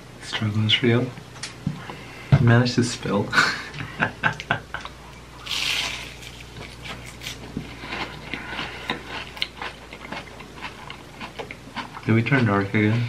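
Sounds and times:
wet chewing and lip-smacking: 6.3s - 12.5s.

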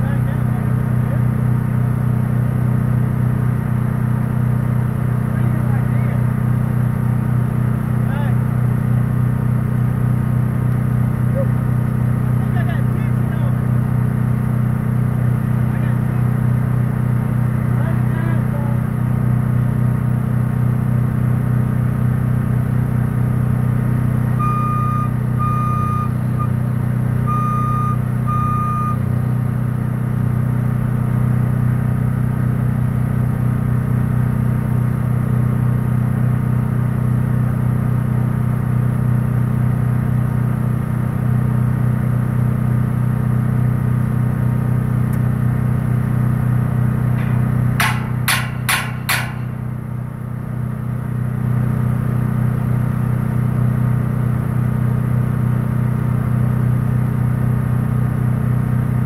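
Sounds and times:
truck engine idling: 0.0s - 59.0s
short beeps: 24.4s - 26.6s, 27.2s - 29.1s
sharp knocks: 47.2s - 49.7s.

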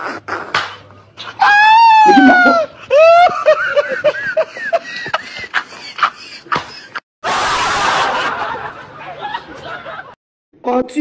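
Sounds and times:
person snickering and laughing: 1.9s - 7.0s.

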